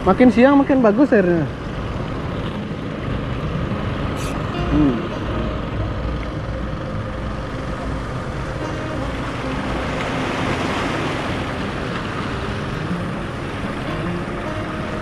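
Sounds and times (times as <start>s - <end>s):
boat engines droning: 0.0s - 15.0s
waves washing against rocks: 9.6s - 13.4s.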